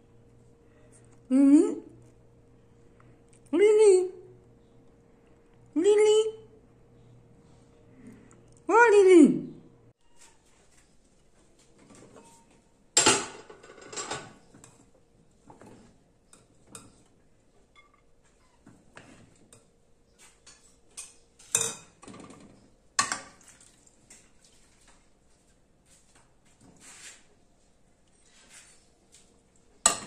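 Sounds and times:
metal spoon clinking on pots: 0:20.4 - 0:22.2, 0:23.0 - 0:23.4.

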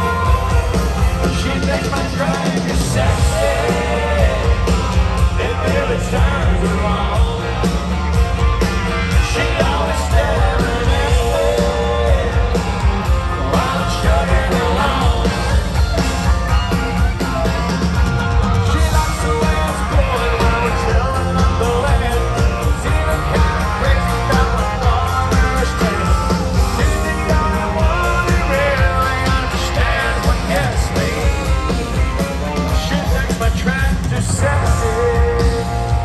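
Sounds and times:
man singing lead vocal: 0:00.0 - 0:16.7, 0:18.4 - 0:36.0
live country-rock band: 0:00.0 - 0:36.0.

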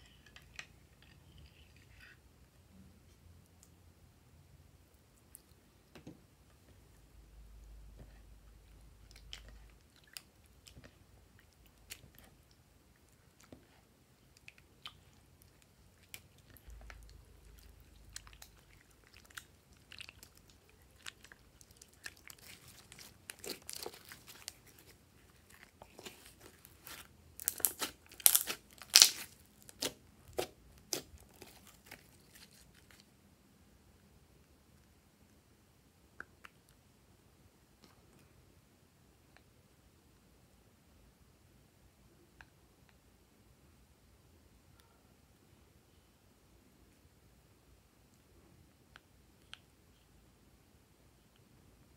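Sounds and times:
hands squishing slime: 0:14.4 - 0:33.0.

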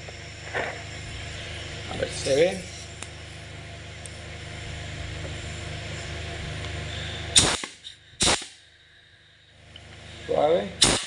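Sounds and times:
compressed air rushing: 0:06.8 - 0:09.0
sharp air blasts: 0:06.9 - 0:08.7, 0:10.8 - 0:11.0.

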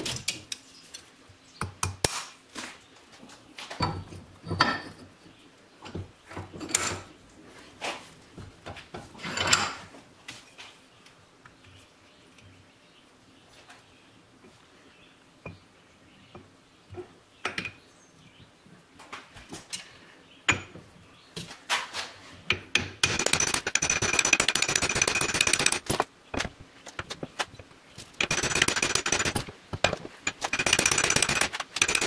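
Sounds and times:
rapid metallic rattling and grinding: 0:22.8 - 0:27.3, 0:28.2 - 0:32.0.

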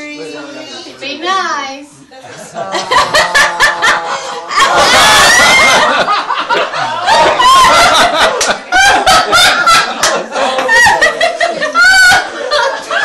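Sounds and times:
people laughing: 0:02.2 - 0:13.0.

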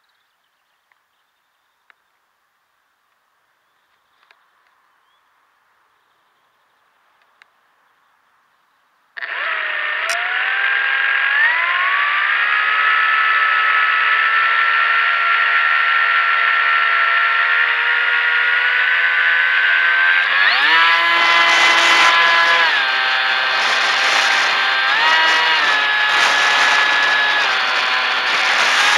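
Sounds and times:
electric motor and propeller whine: 0:09.2 - 0:28.9.

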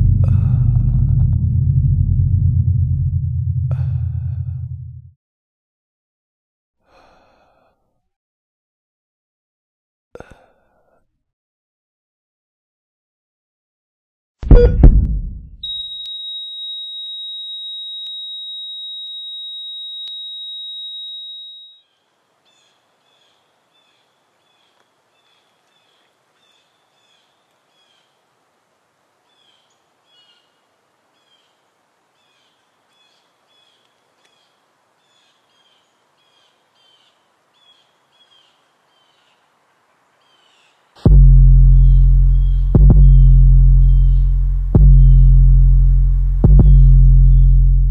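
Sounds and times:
heart monitor flatline tone: 0:14.5 - 0:21.7
faint birds chirping: 0:21.8 - 0:41.0.

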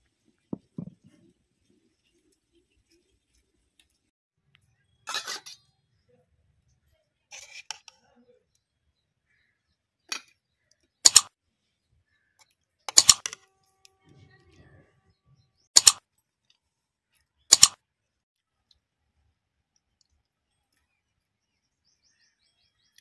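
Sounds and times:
metal spoon scraping a pot: 0:05.1 - 0:05.8, 0:07.3 - 0:08.0.

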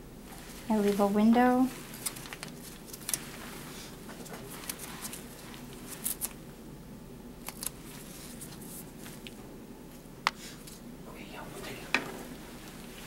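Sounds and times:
paper label rustling: 0:00.4 - 0:06.4, 0:07.4 - 0:09.4.

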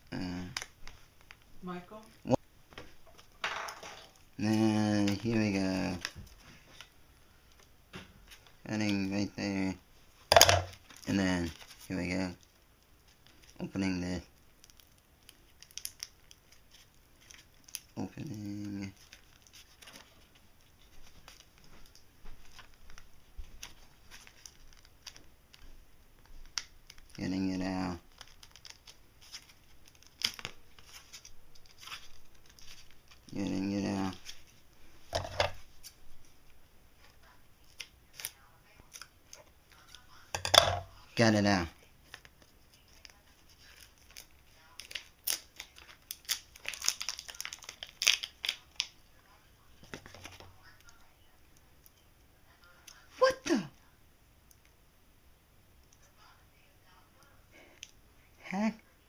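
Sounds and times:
plastic packaging crinkling: 0:10.3 - 0:36.3, 0:42.0 - 0:49.1.

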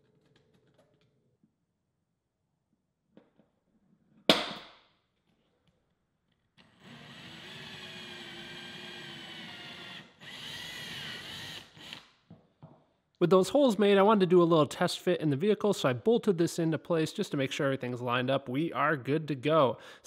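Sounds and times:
cordless drill boring: 0:06.6 - 0:12.2.

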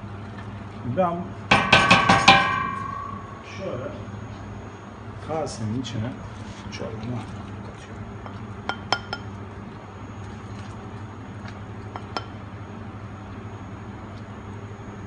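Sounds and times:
steady low hum: 0:00.0 - 0:15.0
ceramic bowl clinking: 0:08.3 - 0:09.4, 0:12.0 - 0:12.4.

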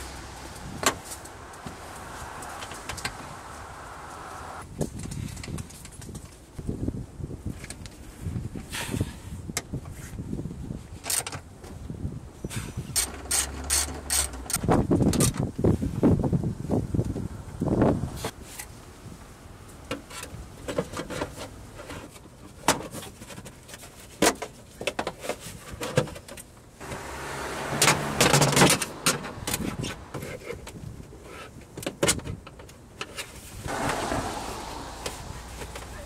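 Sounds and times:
hand tools and plastic clicks: 0:12.9 - 0:15.5.

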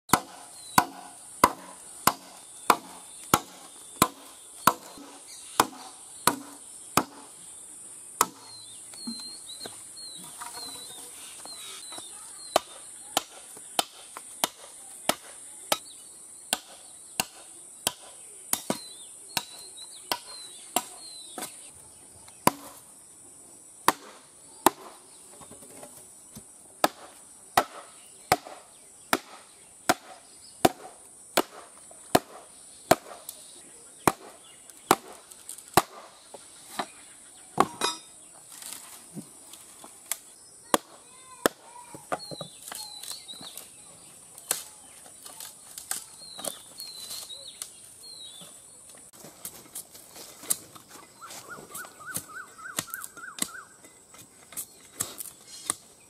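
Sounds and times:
blade chopping bamboo: 0:00.1 - 0:07.3, 0:22.4 - 0:22.8, 0:26.8 - 0:33.3, 0:34.0 - 0:36.1
wood pounding bamboo stakes: 0:00.1 - 0:07.4, 0:08.2 - 0:11.0, 0:11.8 - 0:21.6, 0:22.4 - 0:22.8, 0:23.9 - 0:33.3, 0:34.0 - 0:36.1, 0:37.6 - 0:38.8, 0:40.1 - 0:43.7, 0:49.1 - 0:55.9
insects trilling: 0:49.9 - 0:56.0.

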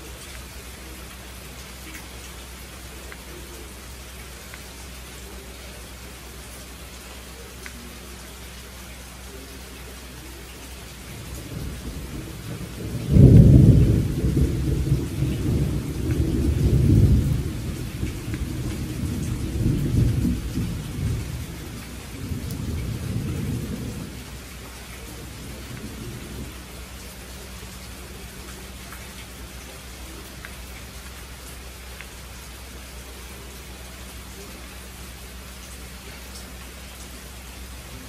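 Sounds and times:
rain hiss: 0:00.0 - 0:38.0
thunder rumbling: 0:11.1 - 0:26.8.

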